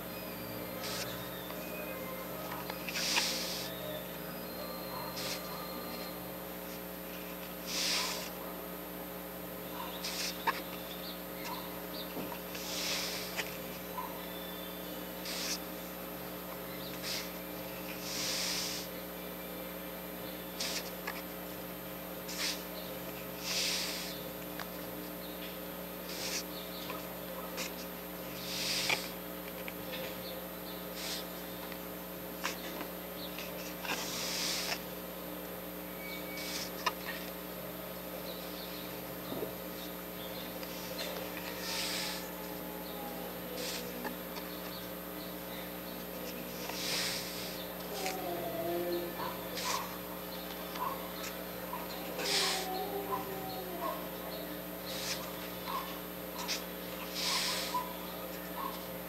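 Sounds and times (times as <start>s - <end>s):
low electrical hum: 0.0s - 59.0s
soft breaths: 2.6s - 3.8s, 12.3s - 14.0s, 22.3s - 24.3s, 32.4s - 34.9s, 40.5s - 42.5s, 46.0s - 50.0s, 51.2s - 53.2s, 54.8s - 58.0s.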